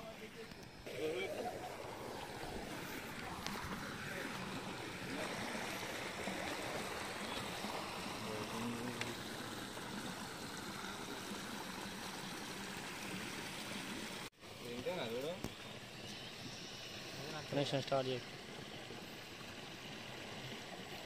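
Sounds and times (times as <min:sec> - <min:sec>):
water rushing over weir: 0:00.5 - 0:21.0.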